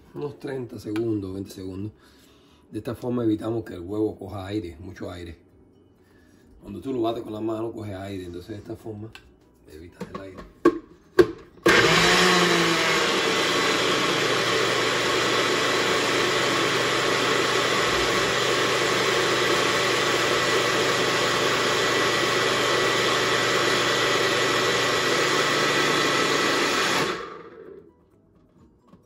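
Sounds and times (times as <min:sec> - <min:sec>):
blender motor running: 0:11.6 - 0:27.9.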